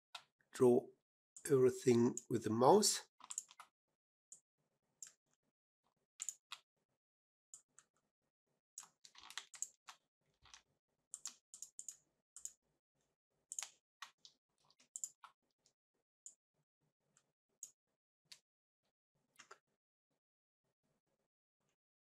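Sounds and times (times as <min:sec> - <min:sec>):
computer mouse clicking: 0:03.2 - 0:03.7, 0:06.2 - 0:06.6, 0:11.2 - 0:12.6, 0:13.5 - 0:13.8, 0:14.7 - 0:15.2.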